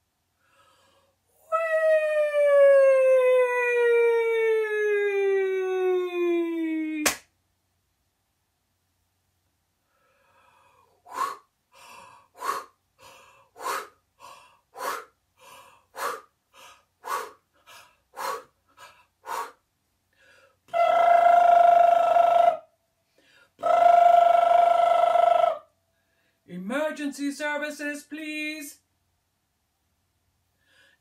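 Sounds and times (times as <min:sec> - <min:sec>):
woman holding long vocal tones: 0:01.3 - 0:07.1, 0:10.5 - 0:19.6, 0:20.6 - 0:22.7, 0:23.5 - 0:25.7.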